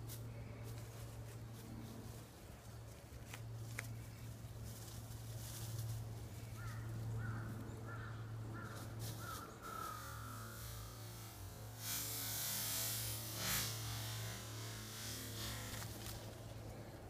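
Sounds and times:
faint rustles and clicks: 0:00.0 - 0:07.7, 0:08.6 - 0:11.5
steady low hum: 0:00.0 - 0:17.0
bird calling: 0:06.4 - 0:10.7.

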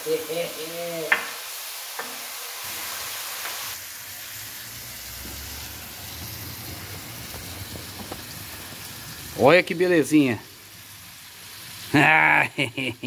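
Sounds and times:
meat sizzling in hot fat: 0:00.0 - 0:13.0
low rumble: 0:04.3 - 0:09.4.

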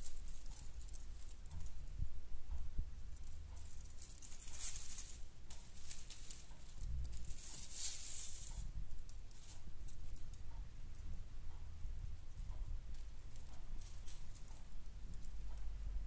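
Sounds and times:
cat toy crinkling rustles: 0:00.0 - 0:01.8, 0:03.2 - 0:10.3
low steady rumble: 0:00.0 - 0:16.0.

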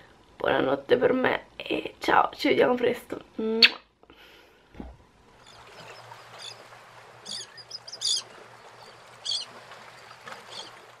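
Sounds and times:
small birds chirping: 0:05.4 - 0:06.6, 0:07.2 - 0:09.5.

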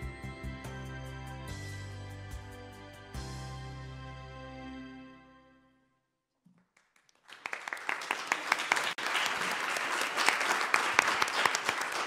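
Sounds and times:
audience applauding: 0:06.8 - 0:12.0.

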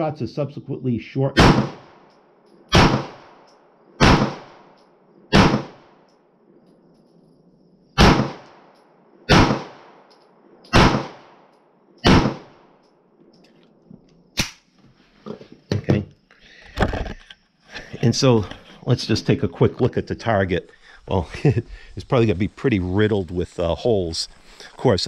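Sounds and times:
pistol shots with echo: 0:01.4 - 0:02.1, 0:02.7 - 0:06.0, 0:08.0 - 0:10.1, 0:10.7 - 0:12.8.

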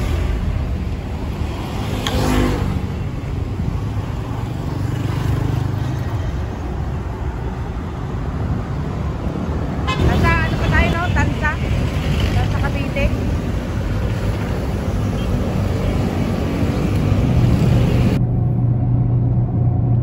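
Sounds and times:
highway traffic rumble: 0:00.0 - 0:20.0.

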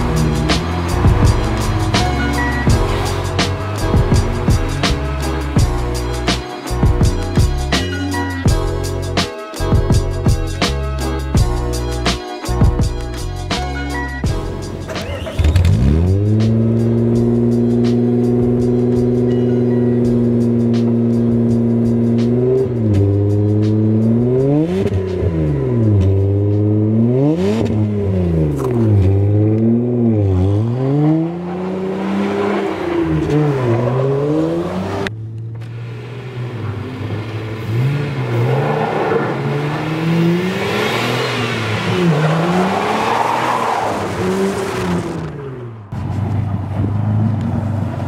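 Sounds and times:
car exhaust revving and accelerating: 0:00.0 - 0:11.8, 0:12.6 - 0:48.0.

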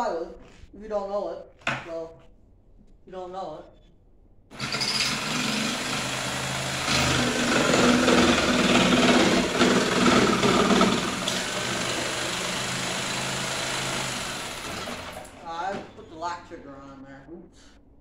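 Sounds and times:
jigsaw cutting plywood: 0:04.5 - 0:15.8.

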